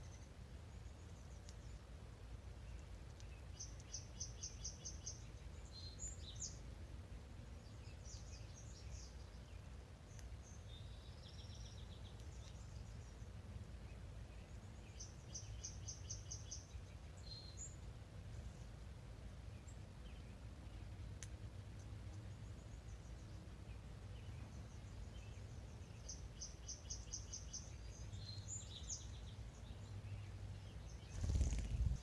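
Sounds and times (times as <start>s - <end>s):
songbirds singing: 0.0s - 32.0s
low steady rumble: 27.8s - 32.0s.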